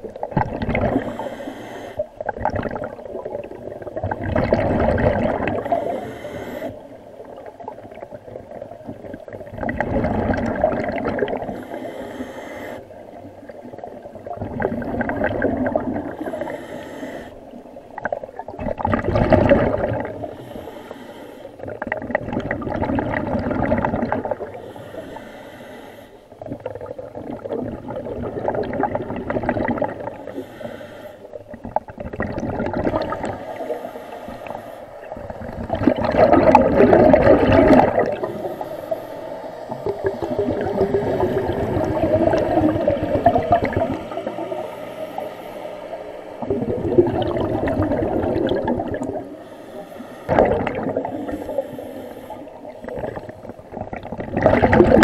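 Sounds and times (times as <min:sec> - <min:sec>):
exhaust bubbles gurgling: 0:00.0 - 0:01.3, 0:02.0 - 0:06.2, 0:07.1 - 0:11.8, 0:13.0 - 0:16.6, 0:17.5 - 0:20.5, 0:21.6 - 0:24.7, 0:26.4 - 0:30.4, 0:31.3 - 0:39.0, 0:39.6 - 0:45.2, 0:45.8 - 0:49.5, 0:50.3 - 0:55.0
regulator hiss on inhale: 0:00.9 - 0:02.1, 0:05.6 - 0:07.0, 0:11.4 - 0:13.1, 0:16.1 - 0:17.6, 0:20.2 - 0:21.6, 0:24.5 - 0:26.4, 0:30.1 - 0:31.4, 0:33.2 - 0:35.2, 0:38.2 - 0:41.9, 0:43.9 - 0:46.4, 0:49.2 - 0:50.3, 0:51.0 - 0:53.5.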